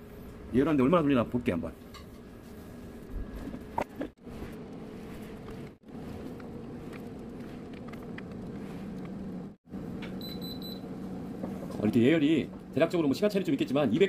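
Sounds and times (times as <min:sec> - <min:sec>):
air fryer fan humming: 0:05.8 - 0:14.0.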